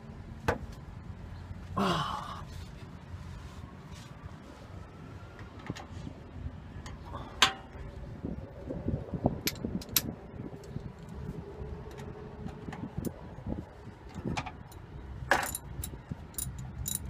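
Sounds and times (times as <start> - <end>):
hand tools clinking on metal: 14.7 - 17.0.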